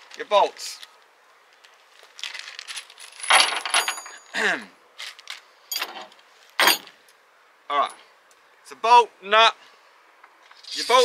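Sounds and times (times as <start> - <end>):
bolts and nuts clinking: 2.7 - 4.4, 5.7 - 7.0.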